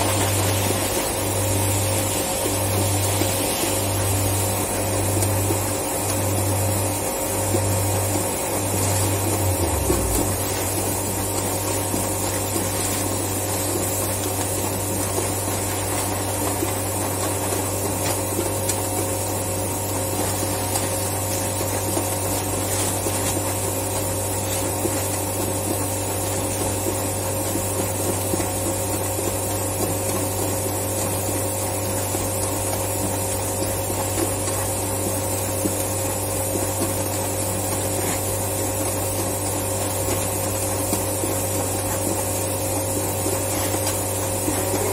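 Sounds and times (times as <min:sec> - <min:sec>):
steady machine tones: 0:00.0 - 0:22.7, 0:42.1 - 0:44.9
machinery low hum: 0:00.0 - 0:28.1, 0:37.4 - 0:44.9.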